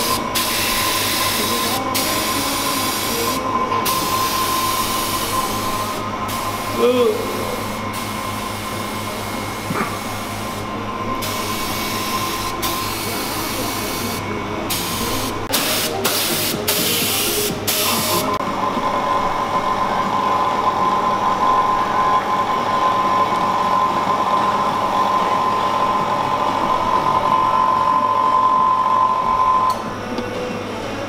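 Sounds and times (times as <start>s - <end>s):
spray gun hissing bursts: 0.0s - 8.9s
mechanical hum with high whine: 0.0s - 31.0s.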